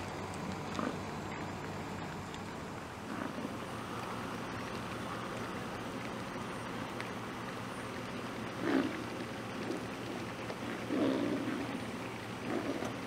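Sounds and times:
bison grunt: 0:08.6 - 0:09.0, 0:10.6 - 0:11.8, 0:12.4 - 0:13.0.

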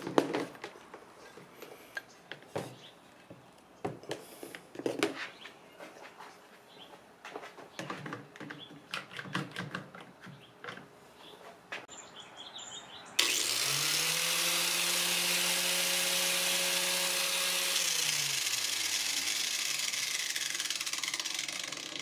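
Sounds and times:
angle grinder whining: 0:13.2 - 0:22.0.

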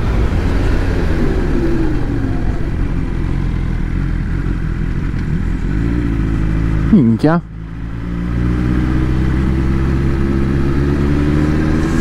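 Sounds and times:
wind noise: 0:00.0 - 0:06.0
motorcycle engine running: 0:02.3 - 0:11.3.

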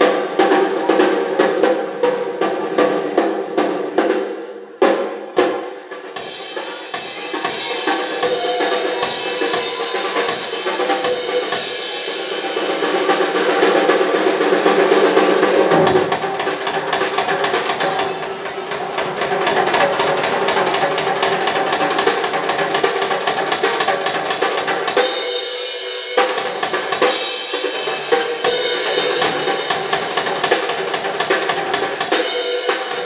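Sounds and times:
rock drum solo: 0:00.0 - 0:33.0
cymbals crashing: 0:06.2 - 0:21.4, 0:25.0 - 0:33.0
rock band playing: 0:06.2 - 0:33.0.

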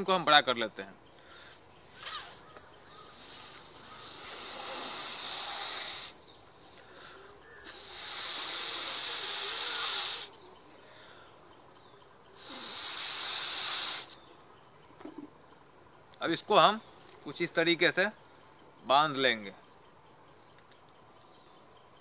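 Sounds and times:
person inhaling: 0:01.2 - 0:11.4, 0:12.4 - 0:14.2
balloon being blown up: 0:01.9 - 0:02.4, 0:07.6 - 0:10.3, 0:12.4 - 0:14.2.

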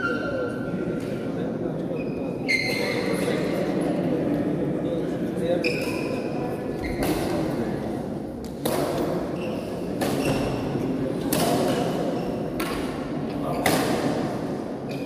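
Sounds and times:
shoes squeaking on court floor: 0:01.9 - 0:03.2, 0:05.6 - 0:07.4, 0:09.4 - 0:10.7
rackets hitting shuttlecock: 0:08.4 - 0:09.3, 0:09.9 - 0:10.6, 0:11.2 - 0:15.0.

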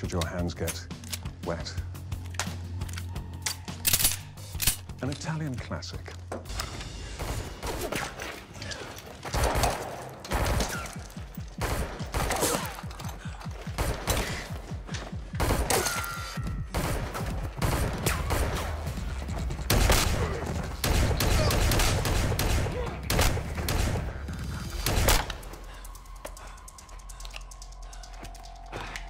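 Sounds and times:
low throbbing film score: 0:00.0 - 0:29.0
gunshots: 0:09.3 - 0:12.9, 0:13.7 - 0:14.7, 0:15.3 - 0:25.5.

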